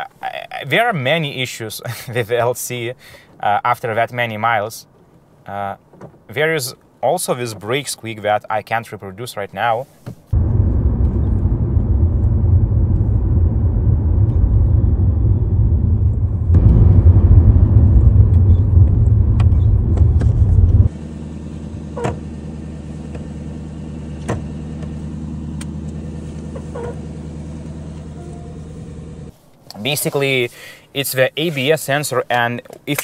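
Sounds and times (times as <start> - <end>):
loud low rumble: 10.3 - 21.9
car engine idling quietly: 10.3 - 30.6
brake squeaks: 21.9 - 29.3.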